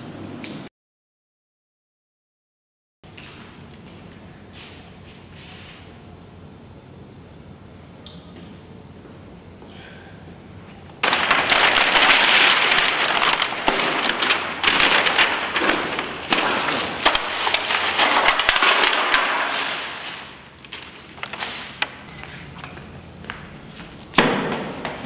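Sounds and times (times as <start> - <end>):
plastic bags and cans crackling: 11.0 - 22.9.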